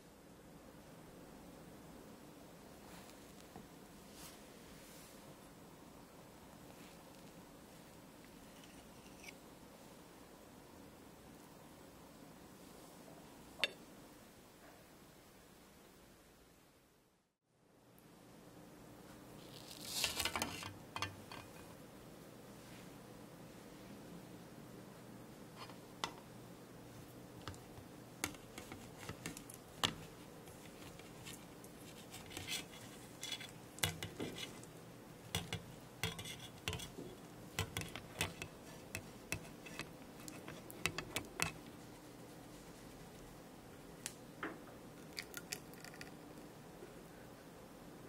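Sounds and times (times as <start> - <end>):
spatula scraping saucepan: 28.2 - 34.7, 35.4 - 41.6.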